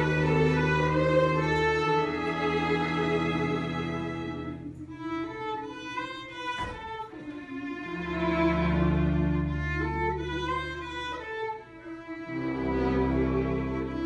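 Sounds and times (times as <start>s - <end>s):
low bass notes: 0.0s - 5.2s
string ensemble playing: 0.0s - 14.0s.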